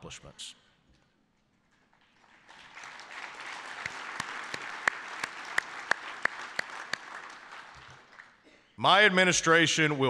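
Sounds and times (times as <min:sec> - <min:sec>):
sharp close claps: 0:01.7 - 0:08.4
audience applauding: 0:02.0 - 0:08.4.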